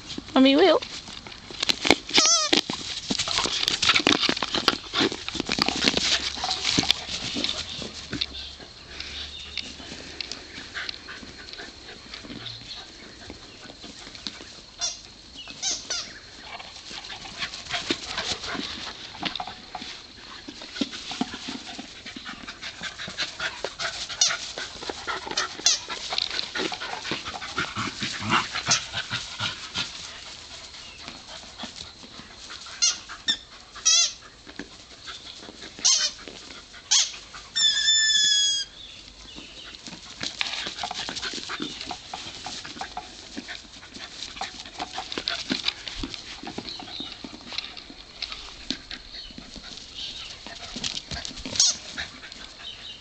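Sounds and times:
dogs scuffling and chewing: 0.0s - 53.0s
squeaky toy squeaking: 2.2s - 2.5s, 32.8s - 34.2s, 36.9s - 38.7s.

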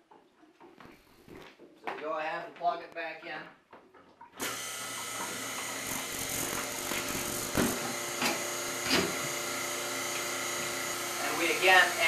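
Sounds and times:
milker hoses slurping: 3.8s - 12.0s
vacuum pump motor hum: 4.4s - 12.0s.

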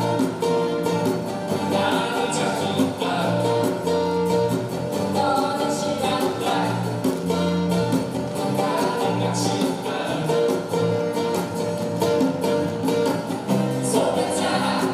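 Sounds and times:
bass: 0.0s - 14.9s
strummed acoustic guitars: 0.0s - 14.9s
voices singing together: 1.5s - 3.9s, 5.1s - 7.1s, 8.4s - 10.6s, 13.7s - 14.9s.

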